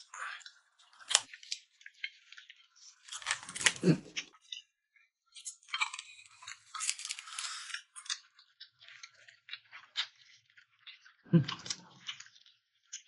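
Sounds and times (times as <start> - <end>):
chicken skin and meat ripping: 0.1 - 4.6, 5.3 - 13.0
wet smacks and chewing clicks: 7.8 - 13.0.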